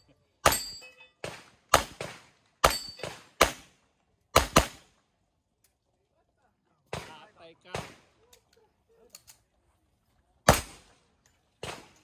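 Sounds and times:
gunshots: 0:00.4 - 0:03.7, 0:04.3 - 0:04.9, 0:06.9 - 0:08.1, 0:10.5 - 0:10.9, 0:11.6 - 0:12.0.

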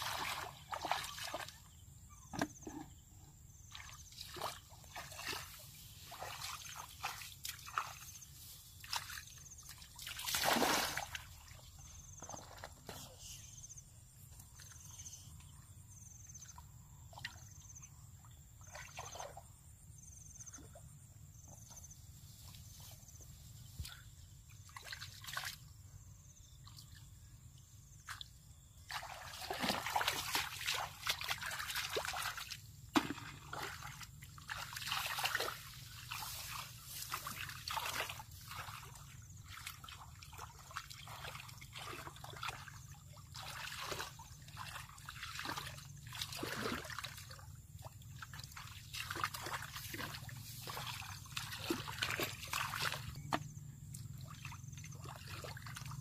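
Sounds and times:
water sloshing and splashing: 0:00.0 - 0:13.3, 0:15.9 - 0:25.8, 0:28.8 - 0:56.0.

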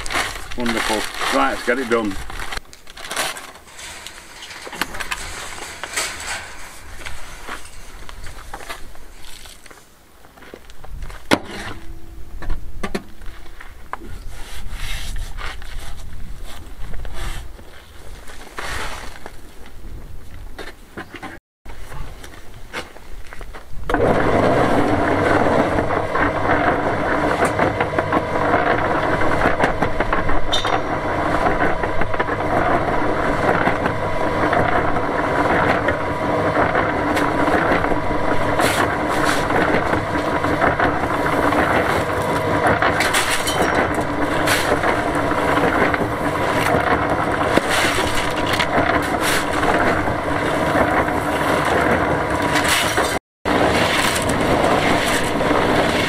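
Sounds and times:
concrete mixer running: 0:00.0 - 0:09.8, 0:23.8 - 0:56.0
shovel scraping and knocking: 0:00.0 - 0:09.9, 0:11.3 - 0:12.0, 0:24.3 - 0:56.0.

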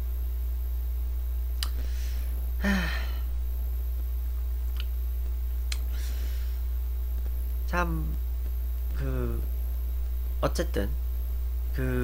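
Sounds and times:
low electrical hum: 0:00.0 - 0:12.0
person sighing: 0:01.9 - 0:03.3.

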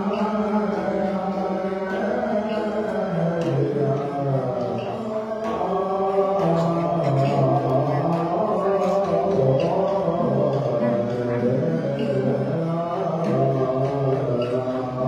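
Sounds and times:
men chanting together: 0:00.0 - 0:15.0.

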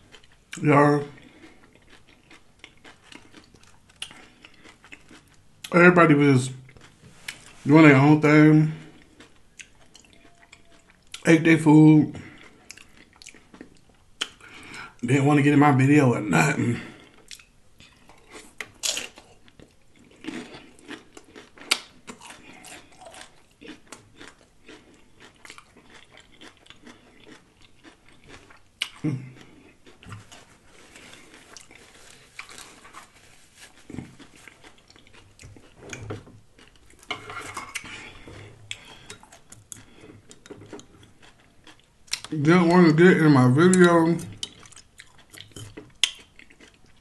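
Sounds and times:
chips crunching while chewing: 0:00.0 - 0:05.4, 0:17.2 - 0:35.8, 0:43.8 - 0:47.0.

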